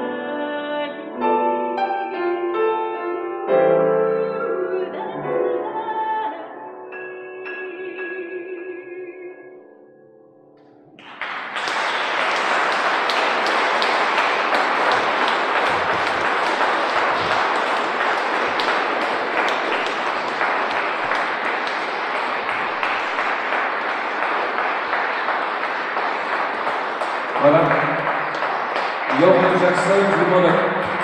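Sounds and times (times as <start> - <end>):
audience applause: 11.0 - 31.0.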